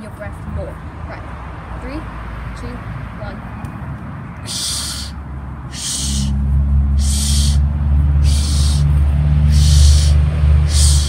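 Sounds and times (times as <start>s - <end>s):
steady low hum: 4.3s - 11.0s
person breathing sharply: 4.4s - 6.4s, 7.0s - 7.6s, 8.2s - 11.0s.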